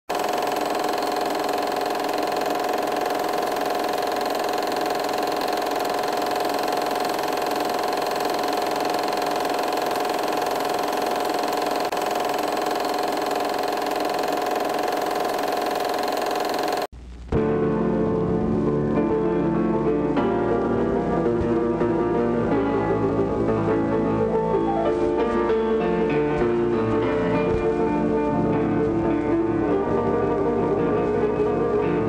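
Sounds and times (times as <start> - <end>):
film projector whirring: 0.1 - 16.9.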